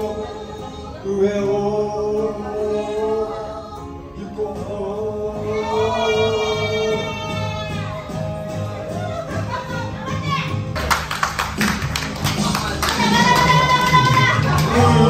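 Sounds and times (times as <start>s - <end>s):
man singing into a microphone: 0.0s - 8.2s, 13.0s - 15.0s
backing track music: 0.0s - 15.0s.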